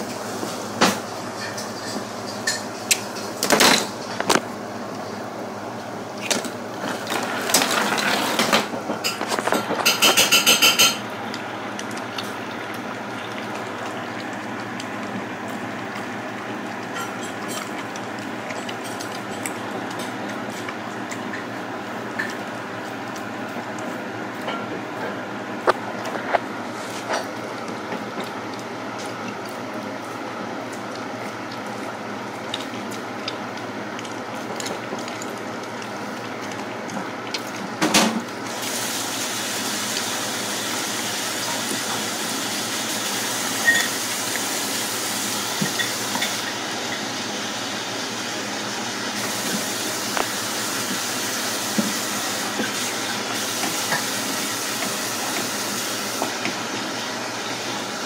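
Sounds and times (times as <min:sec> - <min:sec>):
dog chewing and licking: 0:25.6 - 0:37.8.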